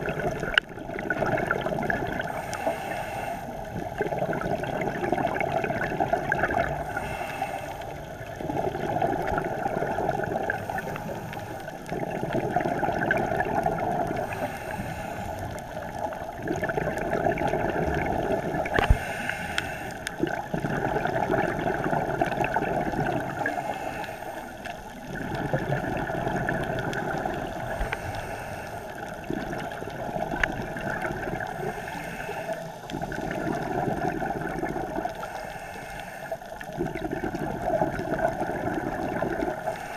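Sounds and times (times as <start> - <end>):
exhaled bubbles gurgling: 0.0 - 39.9
regulator inhalation hiss: 2.3 - 3.6, 6.8 - 8.0, 14.2 - 15.4, 18.7 - 20.0, 27.7 - 29.0, 31.6 - 32.8.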